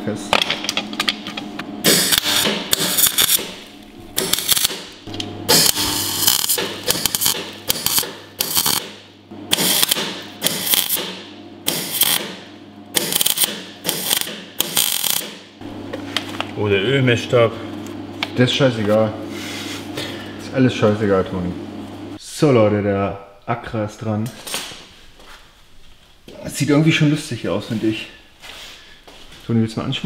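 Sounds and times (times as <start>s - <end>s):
steady low hum: 0.0s - 30.0s
welder crackling sizzle: 1.9s - 8.9s, 9.5s - 11.0s, 11.7s - 12.3s, 13.0s - 15.3s.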